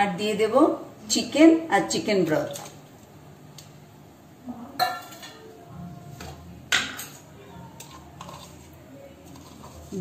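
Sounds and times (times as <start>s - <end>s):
steel bowl clinking on pot: 4.8s - 5.4s.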